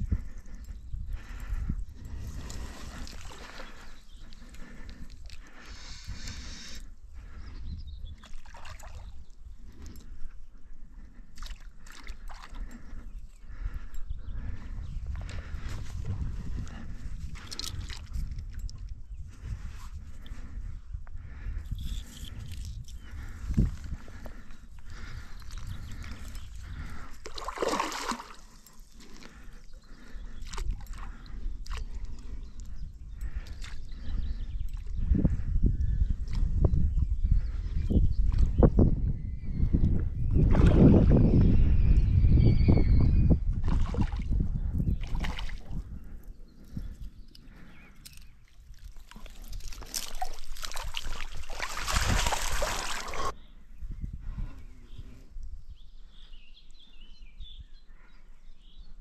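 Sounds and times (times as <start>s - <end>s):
wind rumbling on microphone: 0.0s - 59.0s.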